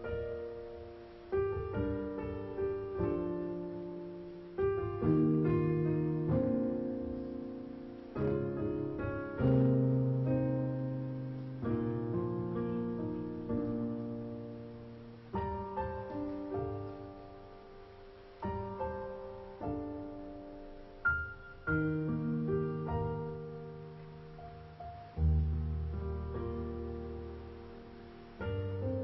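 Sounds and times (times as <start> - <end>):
piano playing slow chords: 0.0 - 29.0.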